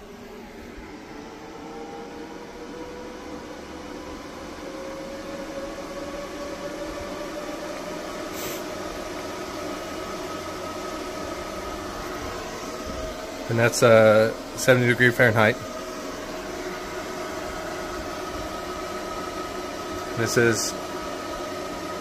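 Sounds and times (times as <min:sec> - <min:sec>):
cooling fans whooshing: 0:00.0 - 0:22.0
short hiss: 0:08.3 - 0:08.6.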